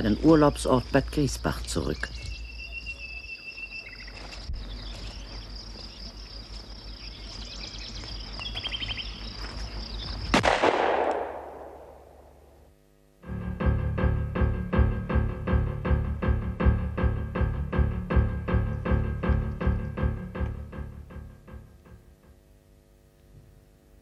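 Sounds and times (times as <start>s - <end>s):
insects chirping: 0.0s - 10.5s, 11.1s - 23.2s
gunshot echoing: 10.3s - 12.4s.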